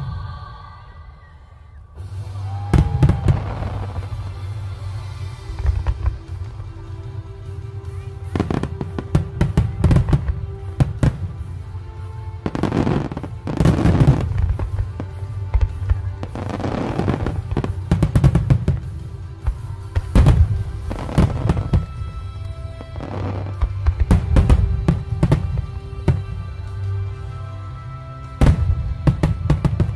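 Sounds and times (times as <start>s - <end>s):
music: 0.0s - 29.9s
fireworks bangs: 2.0s - 6.6s
fireworks crackle: 2.0s - 29.9s.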